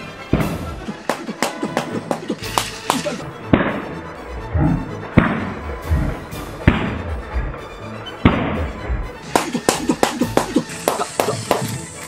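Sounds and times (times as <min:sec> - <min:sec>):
water balloons popping: 0:00.3 - 0:03.8, 0:08.2 - 0:11.8.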